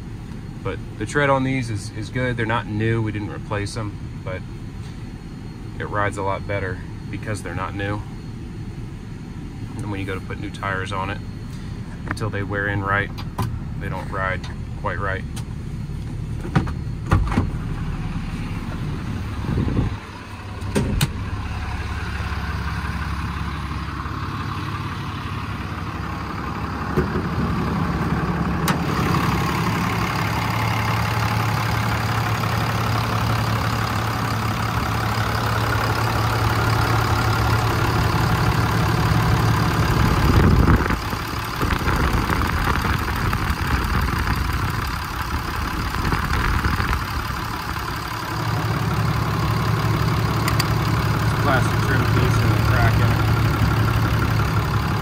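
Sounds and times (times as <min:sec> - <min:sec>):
diesel truck idling: 0:00.0 - 0:55.0.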